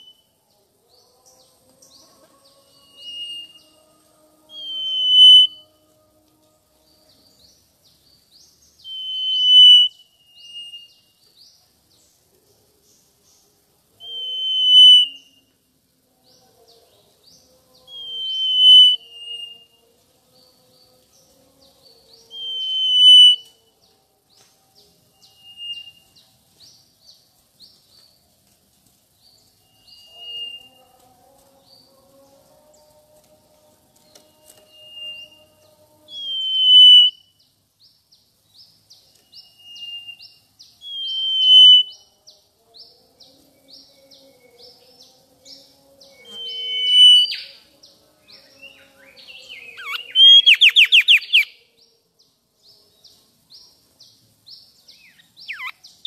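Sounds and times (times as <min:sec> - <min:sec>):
bird whistling song: 0:02.7 - 0:03.8, 0:04.5 - 0:05.6, 0:08.8 - 0:11.1, 0:14.0 - 0:15.5, 0:17.9 - 0:19.8, 0:22.3 - 0:23.6, 0:25.2 - 0:26.2, 0:34.6 - 0:35.5, 0:36.1 - 0:37.4, 0:39.1 - 0:42.1, 0:46.2 - 0:47.6, 0:48.3 - 0:51.6, 0:54.9 - 0:56.0.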